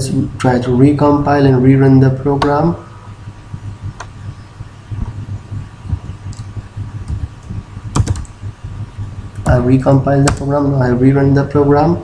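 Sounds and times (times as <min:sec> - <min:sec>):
low steady hum: 0:00.0 - 0:12.0
keyboard keys clicking: 0:06.3 - 0:07.2, 0:07.9 - 0:08.4, 0:10.2 - 0:10.5.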